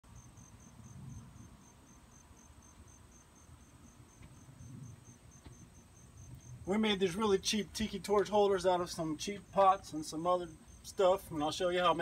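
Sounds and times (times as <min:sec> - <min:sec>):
continuous high trill: 0:00.0 - 0:12.0
crickets chirping: 0:00.0 - 0:12.0
faint low rumble: 0:02.8 - 0:07.2.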